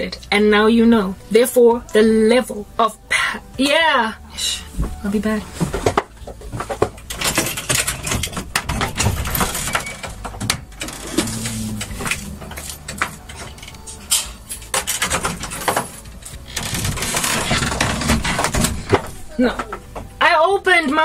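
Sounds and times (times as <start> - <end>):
clicks knocks and clatter: 5.6 - 20.2.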